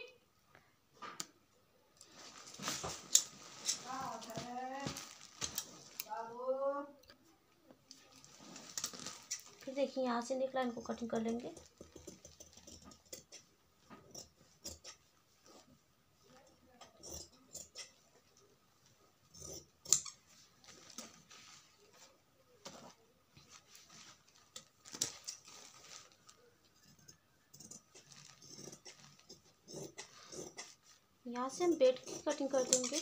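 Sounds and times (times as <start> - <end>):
scissors cutting fabric: 10.7 - 15.7, 16.4 - 18.0, 19.3 - 21.2, 24.2 - 33.0.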